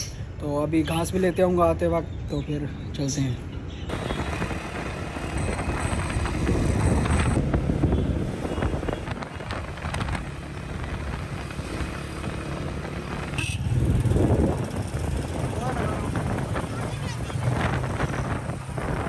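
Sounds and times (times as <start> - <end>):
vehicle rumbling: 0.0 - 19.0
wind on microphone: 3.9 - 19.0.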